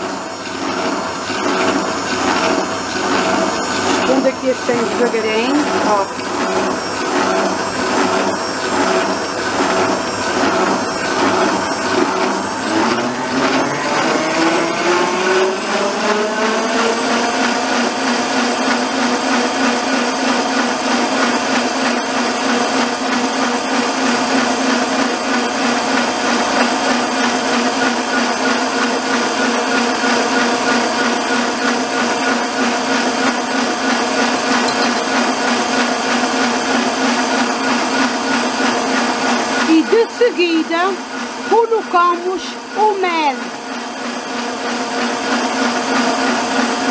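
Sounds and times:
stand mixer motor whine: 0.0 - 46.9.

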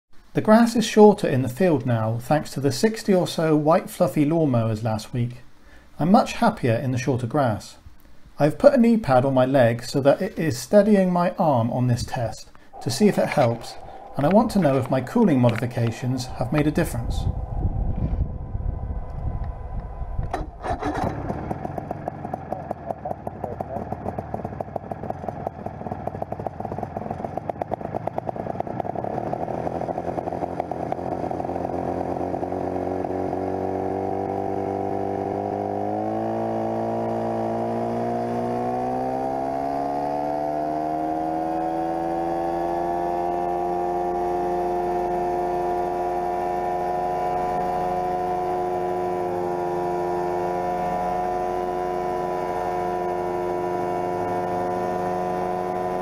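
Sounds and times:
model helicopter engine revving up: 23.9 - 56.0.

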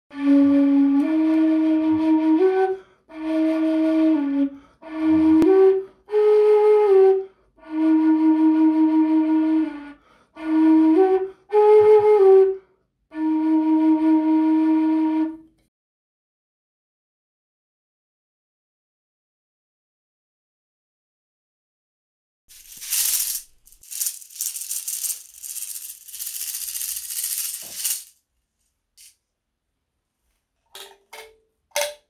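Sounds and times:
flute playing slow melody: 0.1 - 15.5.

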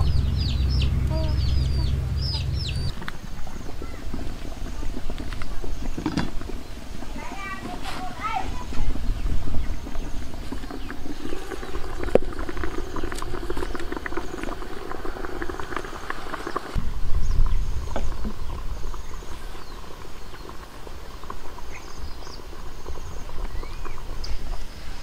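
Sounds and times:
low rumble: 0.0 - 5.8
crackling rustling leaf parcels: 2.9 - 16.8.

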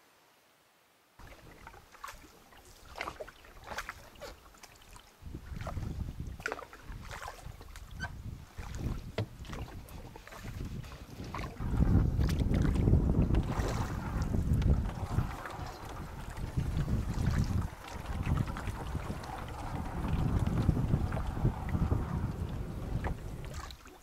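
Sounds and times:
paddle splashing in water: 1.2 - 24.0
wind rumbling on microphone: 5.2 - 24.0.

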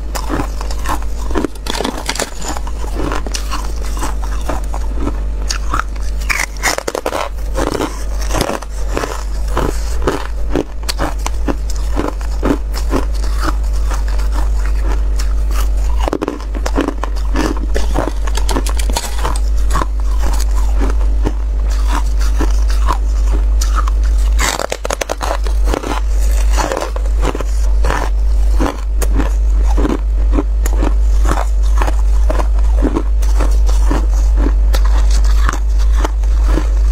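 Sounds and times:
crunching ice with teeth: 0.0 - 36.9
low hum: 0.0 - 36.9.

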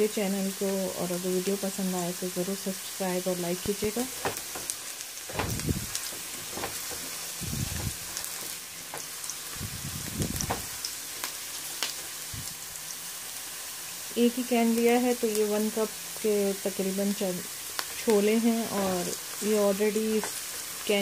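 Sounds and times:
onions sizzling in hot oil: 0.0 - 21.0
oil spitting crackles: 4.0 - 14.0.

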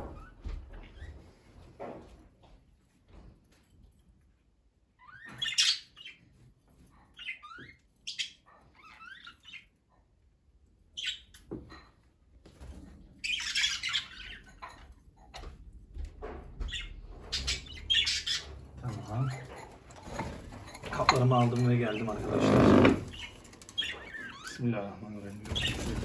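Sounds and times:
budgerigars chirping and chattering: 5.0 - 6.3, 7.1 - 9.8, 11.0 - 11.4, 13.2 - 14.6, 16.6 - 19.6, 20.9 - 26.0.

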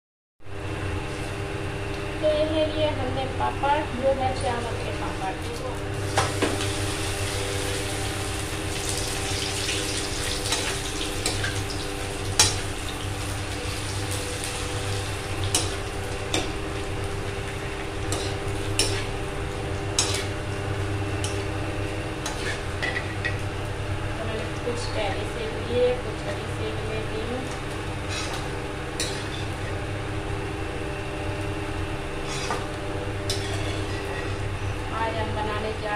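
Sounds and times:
food sizzling in hot oil: 5.9 - 24.0, 26.8 - 35.2.

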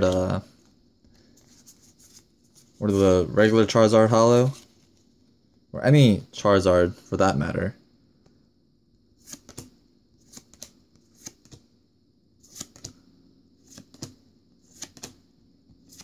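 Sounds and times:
trading cards sliding and snapping: 9.2 - 11.6, 12.4 - 13.0, 13.6 - 15.2, 15.8 - 16.0.

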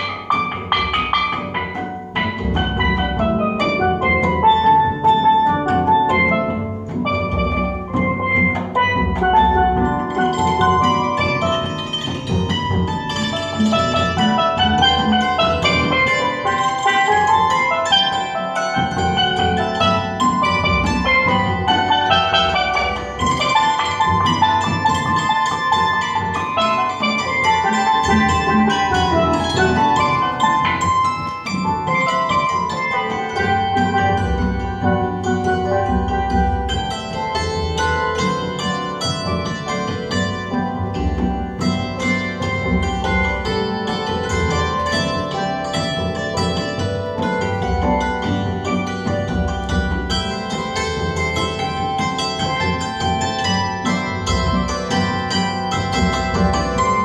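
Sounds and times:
hammered dulcimer: 0.0 - 57.0
steel pan notes: 0.0 - 57.0
low drum beat: 0.8 - 32.6.

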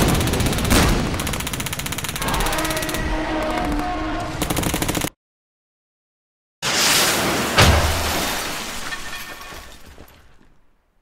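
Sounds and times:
rapid gunfire: 0.0 - 3.0, 4.4 - 5.2
explosion: 6.6 - 9.8.

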